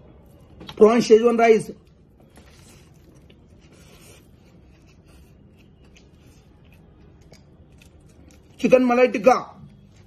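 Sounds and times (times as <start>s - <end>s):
person chewing rice: 2.4s - 8.6s.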